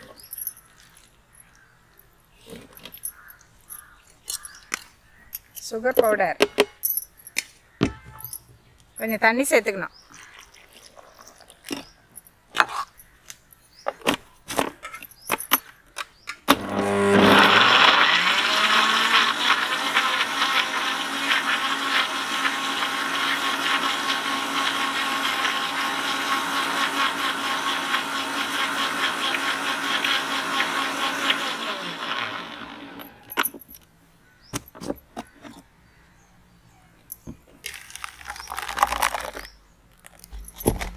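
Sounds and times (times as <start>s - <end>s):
electric blender motor: 16.5s - 33.4s.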